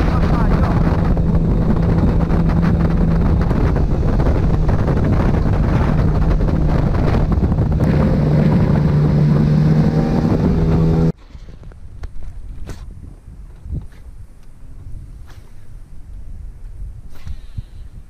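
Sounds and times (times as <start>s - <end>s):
outboard motor running: 0.0s - 11.1s
wind buffeting microphone: 0.0s - 18.0s.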